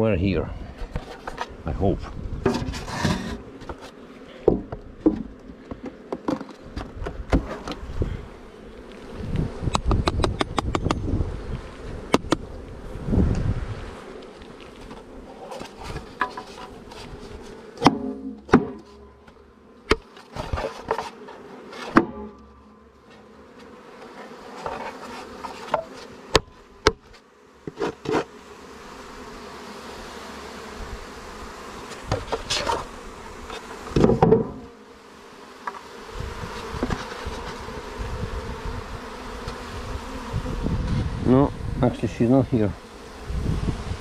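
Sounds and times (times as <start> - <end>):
honeybees buzzing: 0.0 - 44.0
hive parts knocking: 17.8 - 21.0.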